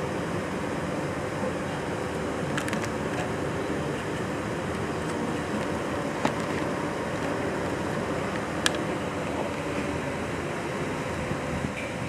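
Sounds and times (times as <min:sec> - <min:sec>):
ventilation hum and hiss: 0:00.0 - 0:12.0.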